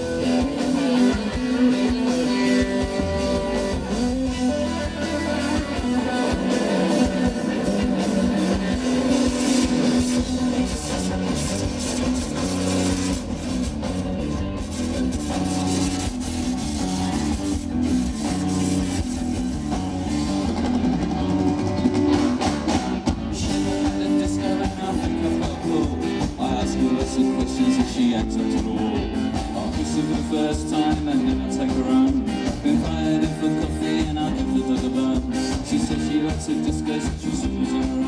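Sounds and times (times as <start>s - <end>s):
lead vocal singing: 0.0s - 13.2s, 23.4s - 38.0s
drum kit: 0.0s - 38.0s
electric guitars: 0.0s - 38.0s
keyboard: 0.0s - 38.0s.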